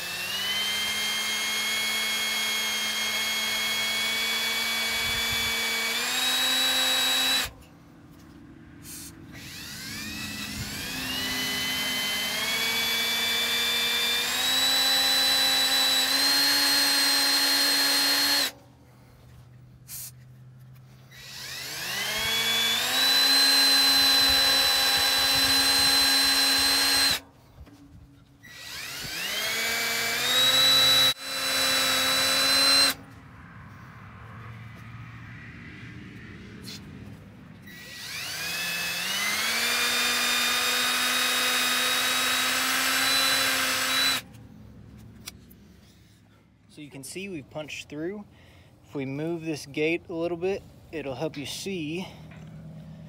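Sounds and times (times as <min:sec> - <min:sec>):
cordless drill whining into steel: 0:00.0 - 0:07.7, 0:08.9 - 0:18.6, 0:21.0 - 0:27.8, 0:28.4 - 0:33.0, 0:37.6 - 0:44.4.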